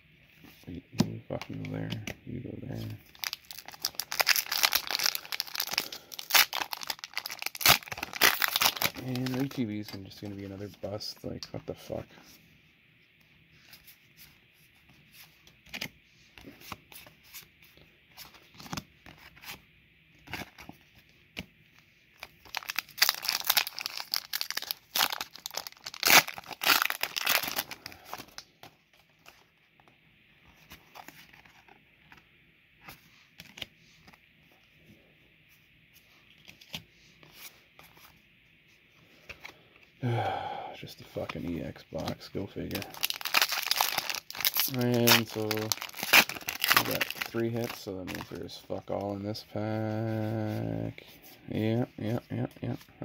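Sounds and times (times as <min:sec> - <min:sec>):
foil wrapper tearing and crinkling: 0:03.1 - 0:09.6, 0:22.3 - 0:28.4, 0:42.7 - 0:48.3.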